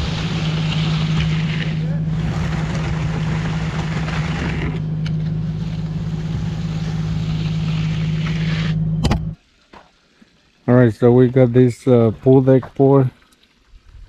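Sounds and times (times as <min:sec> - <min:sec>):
engine running: 0:00.0 - 0:09.4.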